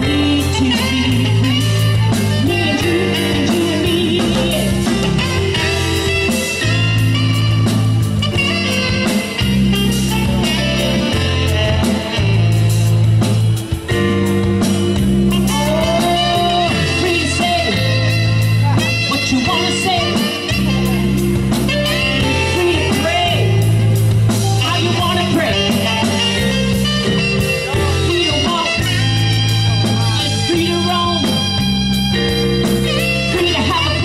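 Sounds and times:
woman singing: 0:00.0 - 0:05.8, 0:15.5 - 0:17.9
jazz band playing: 0:00.0 - 0:34.0.

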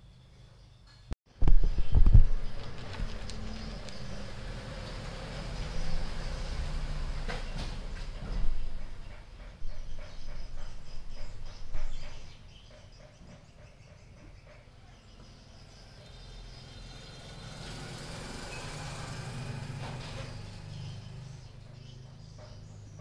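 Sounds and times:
sharp clicks and knocks: 0:00.9 - 0:04.4
vehicle engine passing by: 0:02.2 - 0:09.2, 0:15.6 - 0:22.9.

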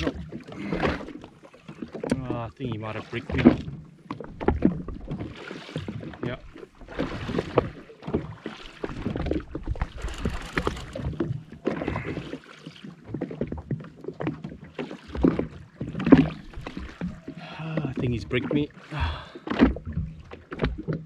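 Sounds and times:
small waves slapping a hull: 0:00.0 - 0:21.0.

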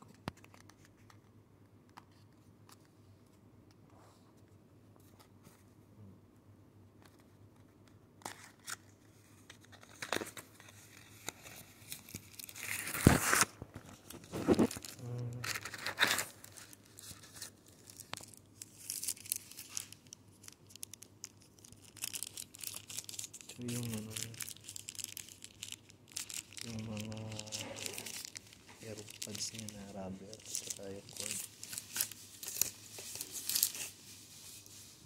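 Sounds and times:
packaging tearing: 0:09.6 - 0:34.0.

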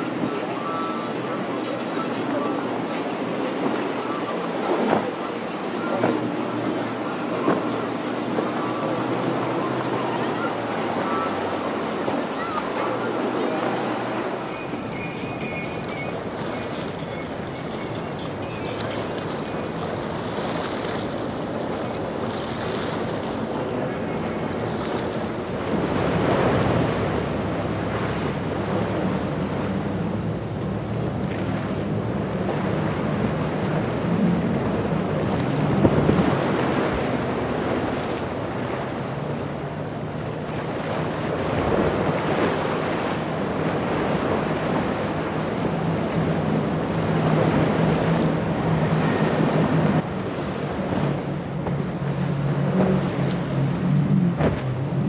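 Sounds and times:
outboard boat engines droning: 0:00.0 - 0:55.0
waves and spray rushing: 0:00.0 - 0:55.0
wind on microphone: 0:30.0 - 0:39.0.

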